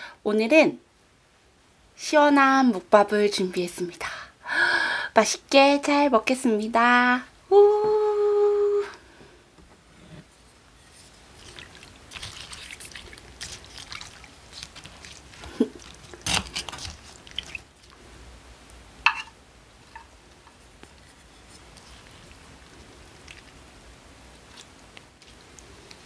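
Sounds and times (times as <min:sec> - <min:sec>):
utensil scraping a bowl: 0:09.9 - 0:17.6, 0:19.9 - 0:22.5
liquid sloshing in a bowl: 0:10.8 - 0:17.9, 0:19.8 - 0:26.0.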